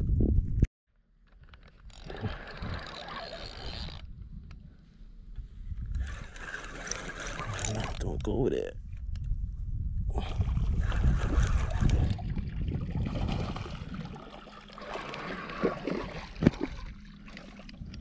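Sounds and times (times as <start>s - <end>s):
fish splashing in water: 10.8s - 17.8s.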